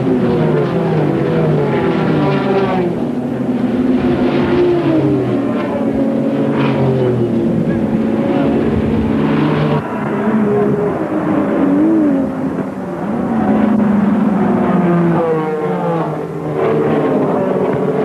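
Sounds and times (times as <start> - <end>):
racing car engines at high revs: 0.0 - 18.0.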